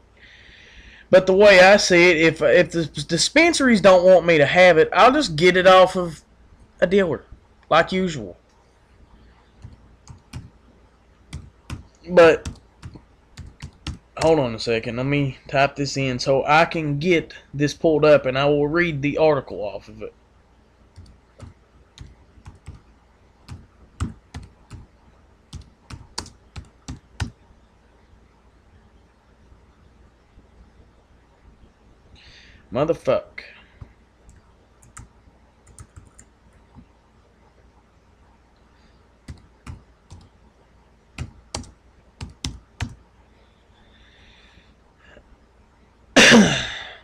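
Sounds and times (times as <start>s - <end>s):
typing on computer keyboard: 11.3s - 14.4s, 21.0s - 22.8s, 25.5s - 27.4s, 34.3s - 35.1s, 35.7s - 36.3s, 39.3s - 40.3s, 41.2s - 43.0s.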